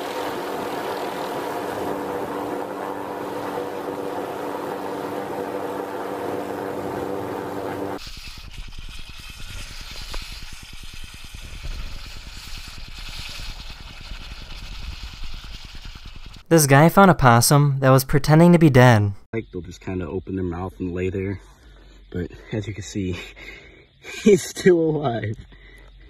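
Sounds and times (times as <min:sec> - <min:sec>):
motor-like drone: 0:00.0 - 0:08.0
lava hissing in water: 0:08.0 - 0:16.4.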